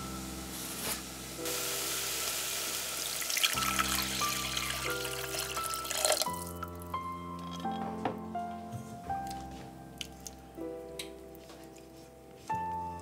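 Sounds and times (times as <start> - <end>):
soft background music: 0.0 - 13.0
water pouring into a saucepan: 1.7 - 6.8.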